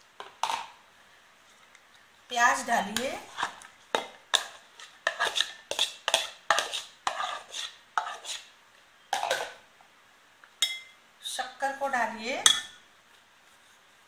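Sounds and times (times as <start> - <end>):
metal spoon scraping bowls: 4.3 - 8.5.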